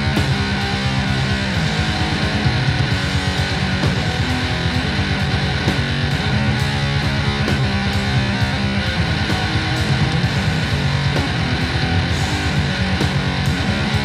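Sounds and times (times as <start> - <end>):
bass guitar: 0.0 - 14.0
distorted electric guitar: 0.0 - 14.0.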